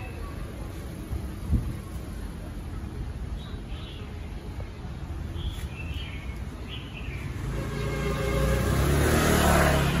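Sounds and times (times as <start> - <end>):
vehicle engine approaching: 7.2 - 10.0.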